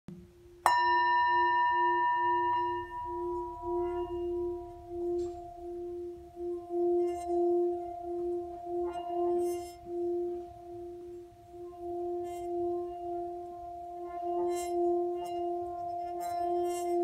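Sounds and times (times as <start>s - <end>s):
low wavering hum: 0.5s - 17.0s
singing bowl struck with mallet: 0.6s - 11.2s.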